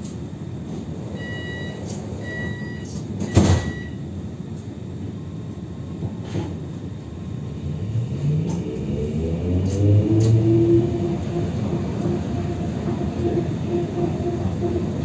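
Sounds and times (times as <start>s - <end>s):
door warning beep: 1.2s - 4.0s
doors shutting thud: 3.2s - 3.8s.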